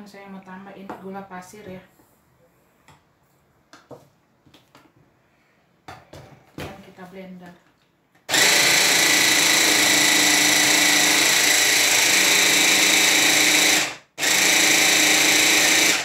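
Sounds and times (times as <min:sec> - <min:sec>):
stick blender grinding: 0:08.3 - 0:16.0.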